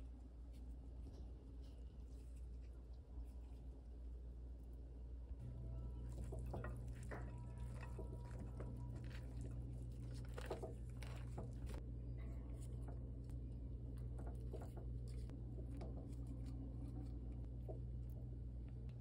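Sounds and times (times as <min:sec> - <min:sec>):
steady low hum: 0:00.0 - 0:19.0
noodles rustling into a pot: 0:05.8 - 0:11.8.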